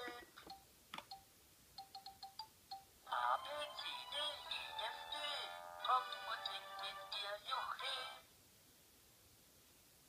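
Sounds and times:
tinny electronic tune: 0:00.4 - 0:04.0.

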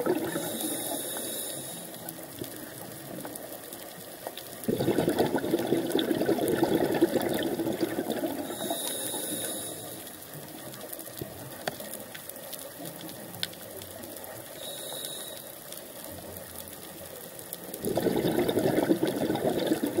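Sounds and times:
exhaled bubbles underwater: 0:00.0 - 0:02.9, 0:04.6 - 0:09.9, 0:17.8 - 0:20.0
faint crackling clicks: 0:00.0 - 0:20.0
regulator inhale hiss: 0:00.2 - 0:02.4, 0:08.4 - 0:10.4, 0:14.6 - 0:15.9.

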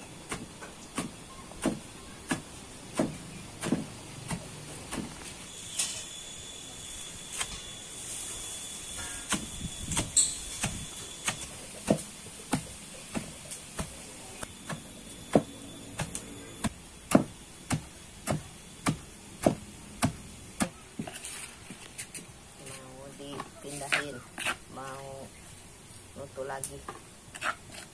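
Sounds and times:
pestle pounding in stone mortar: 0:00.2 - 0:05.2, 0:09.3 - 0:21.2.

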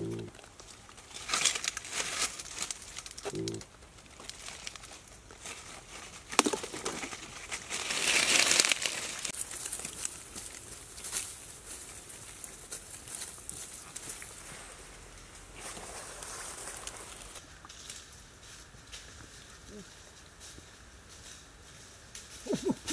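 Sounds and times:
dry leaves crackling and rustling: 0:00.0 - 0:22.9.

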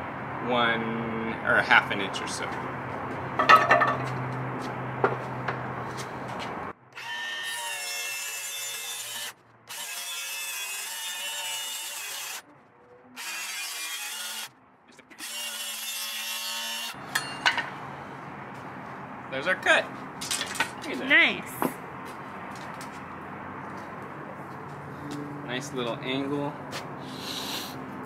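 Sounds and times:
circular saw cutting wood: 0:06.9 - 0:12.5, 0:13.2 - 0:14.5, 0:15.1 - 0:17.0.

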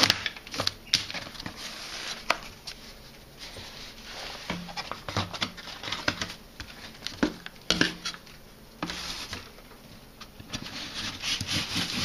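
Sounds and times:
rush rustling and scraping: 0:01.2 - 0:06.0.

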